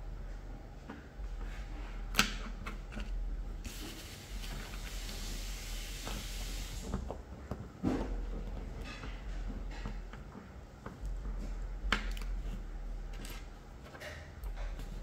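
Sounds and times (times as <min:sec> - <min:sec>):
steady hiss: 0:03.6 - 0:07.0.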